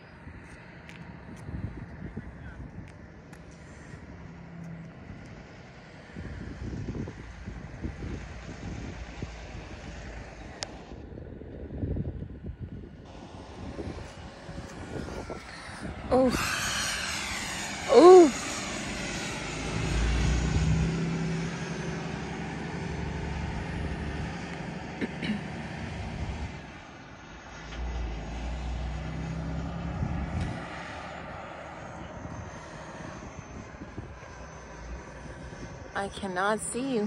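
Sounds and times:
low rumble: 1.2 - 21.6
electric jet fans whining: 12.9 - 26.8.

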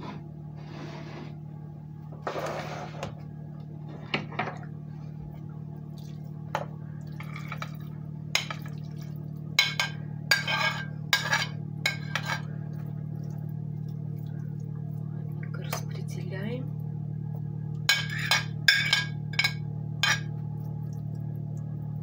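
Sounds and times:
low hum: 0.0 - 22.0
metal spoon scraping ceramic plate: 9.7 - 12.5.

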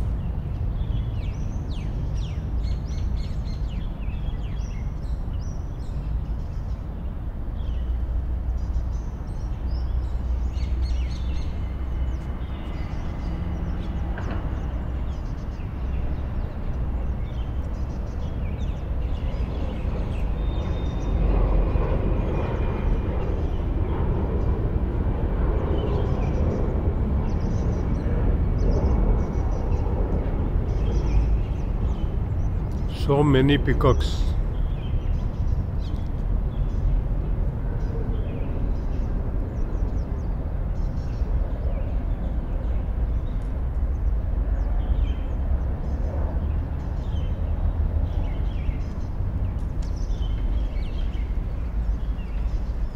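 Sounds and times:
small birds chirping: 0.0 - 24.7, 25.6 - 52.9
low outdoor rumble: 0.0 - 52.9.

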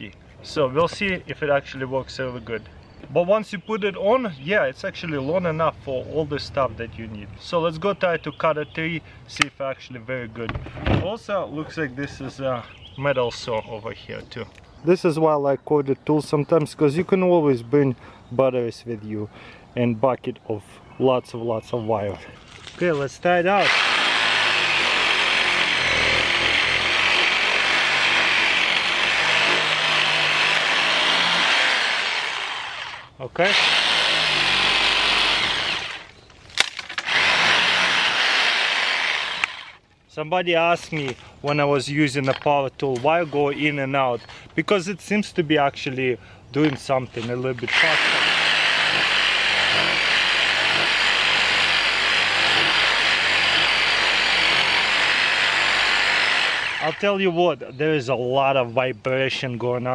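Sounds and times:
electric saw cutting branch: 23.6 - 39.8, 47.6 - 57.1.

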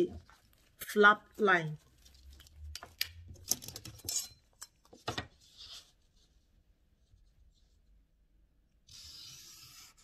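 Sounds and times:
paper rustling: 0.0 - 2.9
metal ruler clicking and clinking: 2.9 - 4.8.

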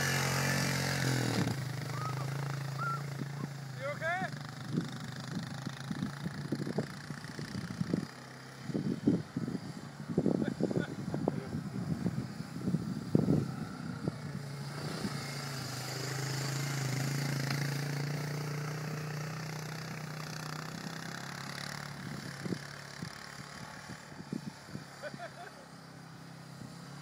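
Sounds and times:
quad bike engine running: 0.0 - 27.0.

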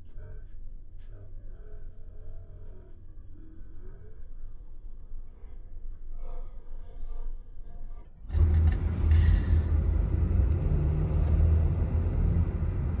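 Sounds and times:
car road noise rumble: 8.2 - 13.0.

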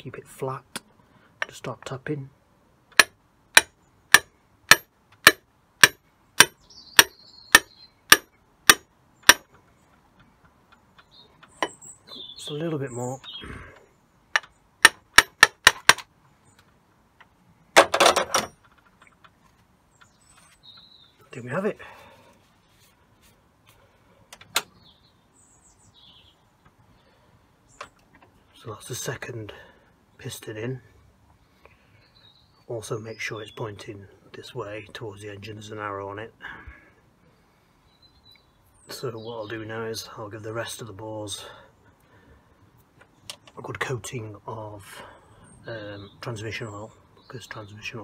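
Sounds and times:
hammer tapping a metal bar: 3.0 - 9.5, 14.8 - 15.8
bird chirping: 6.2 - 8.4, 10.6 - 14.8, 19.8 - 21.6, 24.6 - 28.6, 31.4 - 34.0, 37.2 - 40.0, 45.0 - 48.0.

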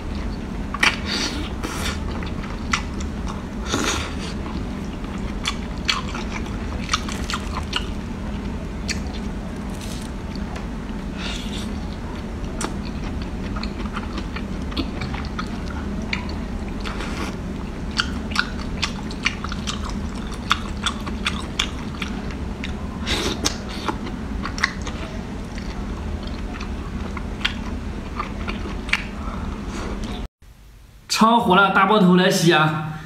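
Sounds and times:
steady low hum: 0.0 - 33.0
wet mouth chewing and smacking: 4.5 - 8.0, 17.9 - 22.8.

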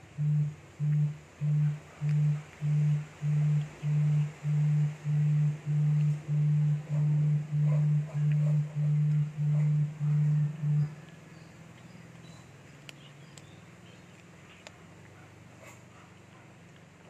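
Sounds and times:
audio feedback howl: 0.0 - 11.4
faint clicks: 0.8 - 9.8.

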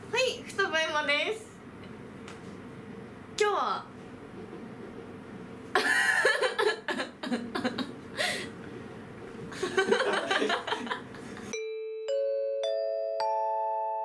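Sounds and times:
young woman laughing: 5.7 - 8.0, 9.5 - 11.5
chime note: 11.5 - 14.0.

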